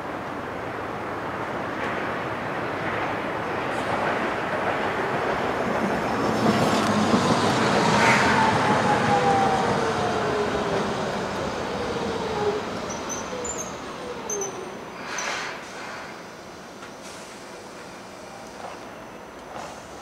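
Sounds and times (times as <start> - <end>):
road traffic noise: 0.0 - 20.0
tram motor whine: 4.9 - 15.0.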